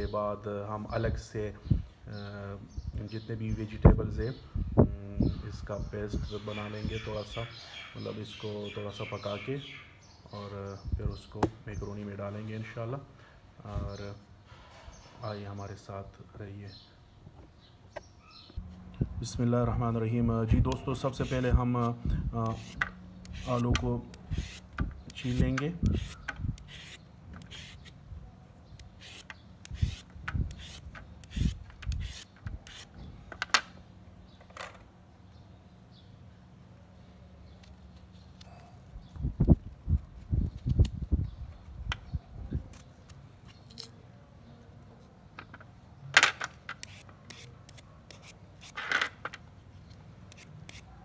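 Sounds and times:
peeler scraping potato skin: 20.7 - 28.0, 28.8 - 32.9, 46.7 - 48.9, 50.3 - 51.0.

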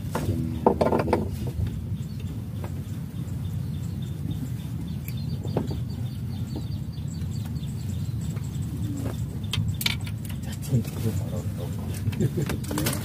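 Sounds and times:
steady low hum: 0.0 - 13.0
light handling knocks: 0.1 - 2.8
faint bird chirps: 1.2 - 12.0.

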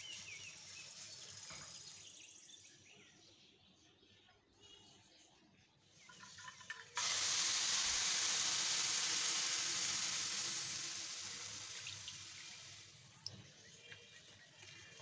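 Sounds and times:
milk sizzling in a hot pan: 0.0 - 2.6, 5.9 - 15.0.

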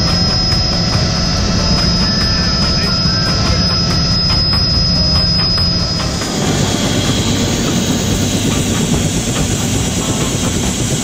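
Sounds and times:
downwash buffeting microphone: 0.0 - 11.0
helicopter rotor and turbine: 0.0 - 11.0.

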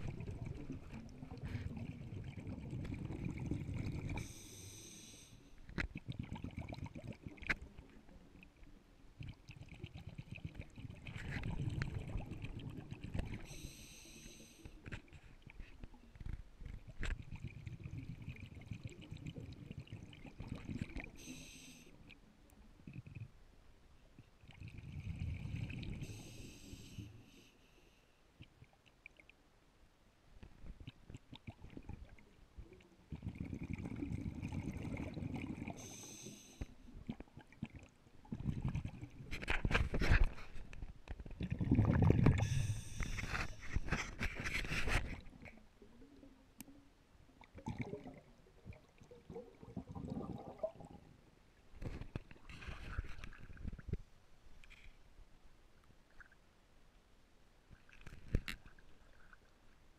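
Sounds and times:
exhaled bubbles gurgling: 0.0 - 4.4, 5.9 - 8.6, 9.2 - 13.8, 16.7 - 21.5, 24.4 - 27.2, 30.8 - 36.3, 36.9 - 40.4, 41.2 - 46.4, 47.3 - 51.2
soft water sounds: 0.0 - 59.9
regulator inhalation hiss: 4.2 - 5.5, 13.5 - 14.7, 21.2 - 21.9, 26.0 - 27.6, 35.8 - 36.7, 42.4 - 43.6.

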